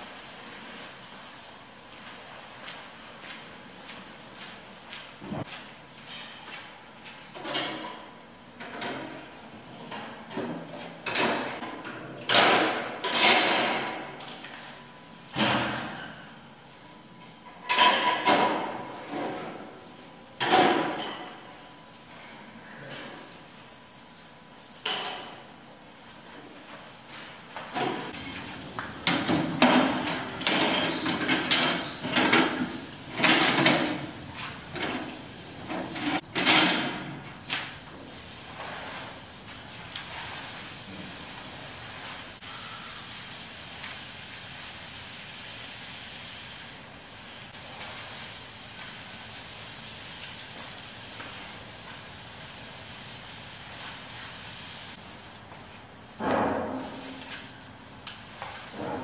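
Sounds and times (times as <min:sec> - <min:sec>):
mop swishing on hard floor: 0:26.6 - 0:31.2, 0:37.3 - 0:59.0.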